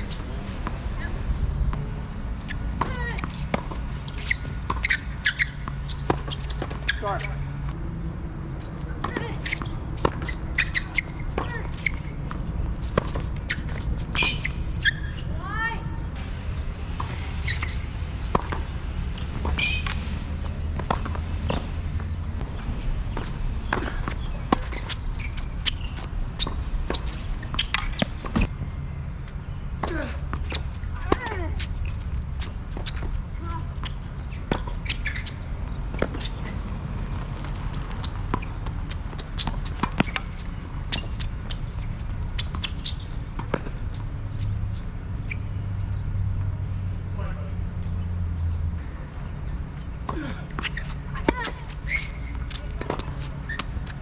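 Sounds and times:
sneakers squeaking on court: 0:00.0 - 0:01.2, 0:02.4 - 0:07.8, 0:08.4 - 0:15.8, 0:16.9 - 0:54.0
low rumble: 0:00.0 - 0:02.4.

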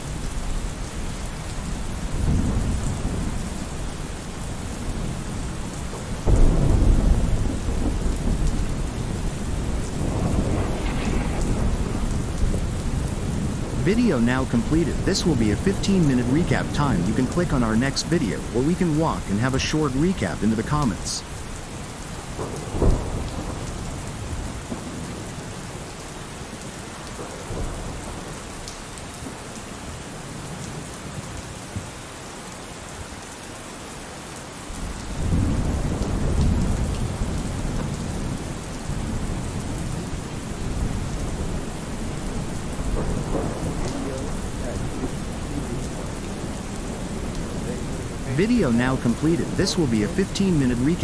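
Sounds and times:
steady rain: 0:00.0 - 0:51.0
thunder rumble: 0:01.6 - 0:21.3, 0:22.2 - 0:25.3, 0:34.8 - 0:51.0.

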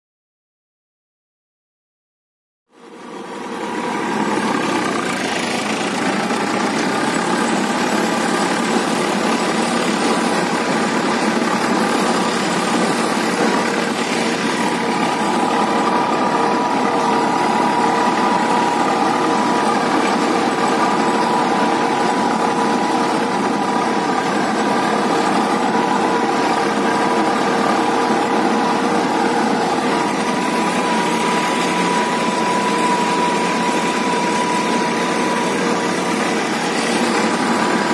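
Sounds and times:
tractor diesel engine running: 0:02.7 - 0:37.9
steady high tone: 0:02.8 - 0:37.9.

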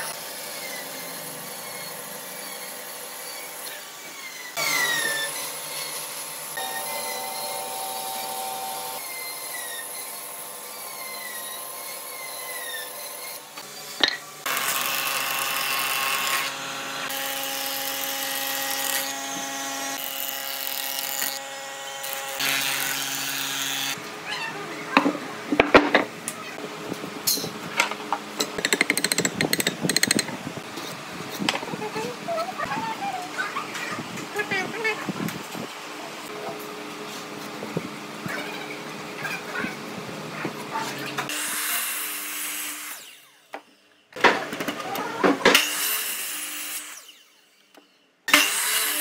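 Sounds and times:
bandsaw cutting wood: 0:00.0 - 0:24.0, 0:41.2 - 0:43.4, 0:48.3 - 0:49.0.

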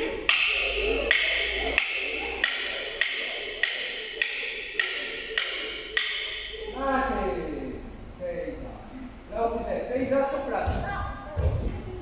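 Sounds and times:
wooden sticks clacking: 0:00.0 - 0:06.8.

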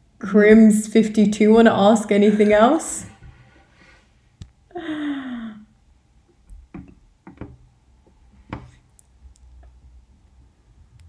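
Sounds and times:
breathy vocal sigh: 0:04.7 - 0:05.7
soft clicks and knocks: 0:06.4 - 0:09.8.

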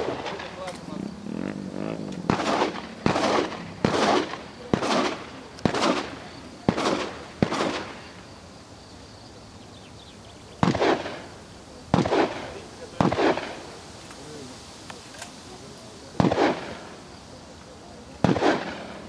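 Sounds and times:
shotgun shots echoing: 0:02.2 - 0:08.1, 0:10.6 - 0:11.3, 0:11.9 - 0:13.7, 0:16.2 - 0:16.9, 0:18.2 - 0:19.0.

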